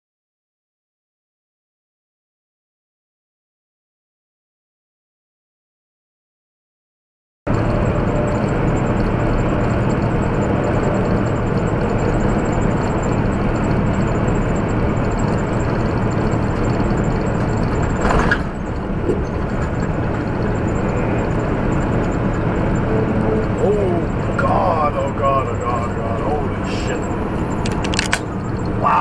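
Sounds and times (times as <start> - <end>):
truck engine drone and road noise: 7.5 - 29.0.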